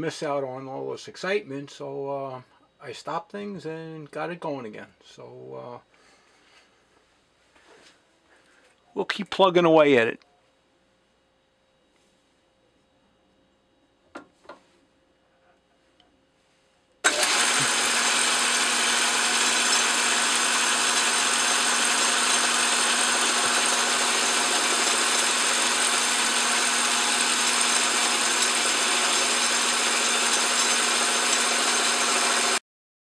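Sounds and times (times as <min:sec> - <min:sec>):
metal lathe cutting: 0:17.0 - 0:32.6.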